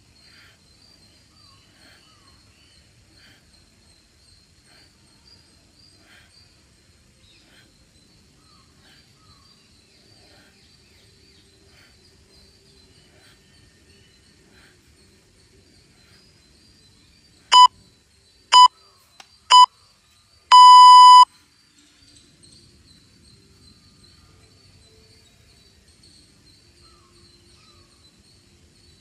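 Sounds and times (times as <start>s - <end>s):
long electronic beep: 17.5s - 17.7s, 18.5s - 18.7s, 20.5s - 21.3s
short electronic beeps: 17.5s - 17.7s, 18.5s - 18.7s, 20.5s - 21.3s.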